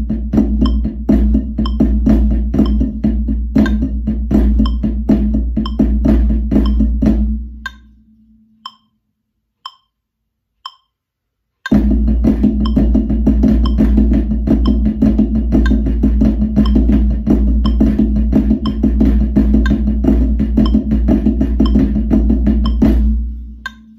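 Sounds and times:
sticks playing on practice pad: 0.0 - 9.0, 9.6 - 10.0, 10.6 - 11.0, 11.6 - 23.9
metronome clicking: 0.6 - 0.9, 1.6 - 1.9, 2.6 - 3.0, 3.6 - 3.9, 4.6 - 4.9, 5.6 - 5.9, 6.6 - 6.8, 7.6 - 8.0, 8.6 - 9.0, 9.6 - 10.0, 10.6 - 11.0, 11.6 - 11.8, 12.6 - 12.9, 13.6 - 13.9, 14.6 - 14.8, 15.6 - 15.9, 16.6 - 17.0, 17.6 - 17.9, 18.6 - 18.9, 19.6 - 19.9, 20.6 - 21.0, 21.6 - 21.9, 22.6 - 22.9, 23.6 - 23.9.

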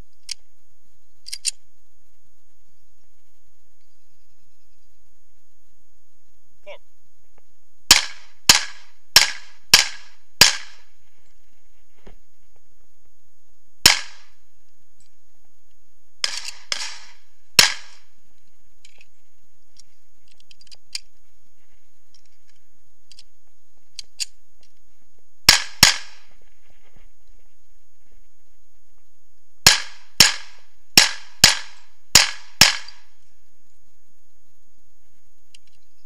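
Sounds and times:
gun handling clicks: 0.1 - 0.4, 1.2 - 1.6, 16.2 - 18.0, 19.7 - 21.1, 22.1 - 23.3, 23.9 - 24.8, 35.5 - 35.9
pistol gunshots: 7.9 - 10.9, 13.8 - 14.4, 16.2 - 18.1, 25.5 - 26.3, 29.6 - 33.1.

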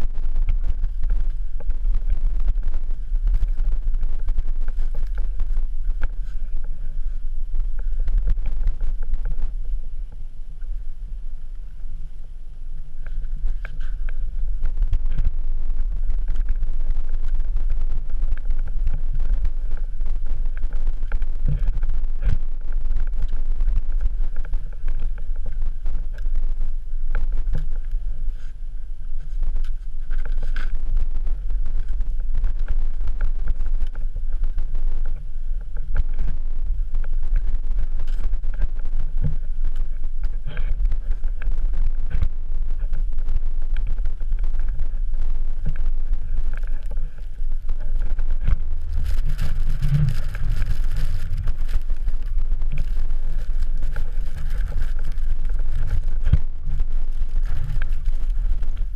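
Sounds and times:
wind buffeting microphone: 0.0 - 58.9
knocks and scrapes: 45.6 - 58.9.

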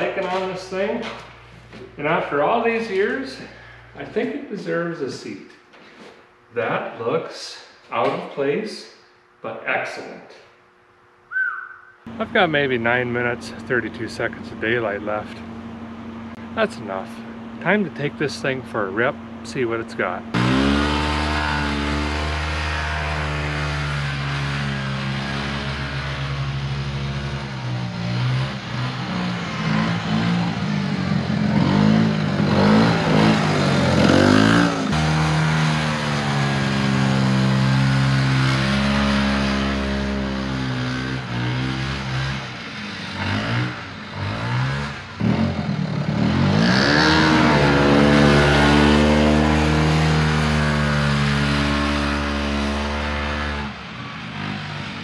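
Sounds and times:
snowmobile engine revving: 16.4 - 55.0.

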